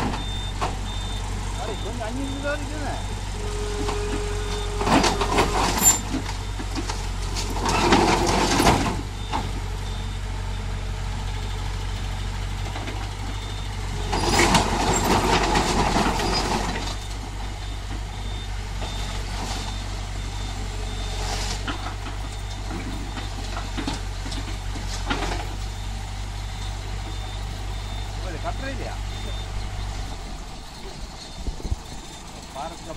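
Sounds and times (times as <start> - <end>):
excavator diesel engine: 0.0 - 32.9
faint beeping: 0.1 - 6.6, 25.2 - 32.9.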